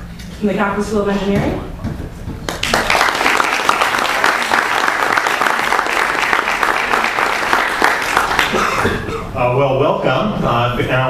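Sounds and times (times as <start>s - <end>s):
audience applauding: 2.5s - 9.1s.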